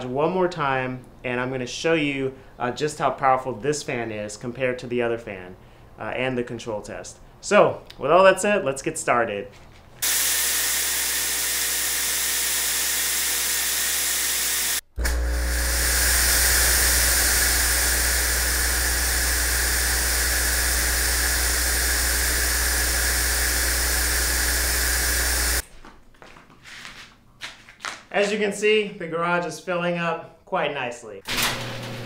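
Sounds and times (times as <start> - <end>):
fog machine hissing: 10.0 - 25.6.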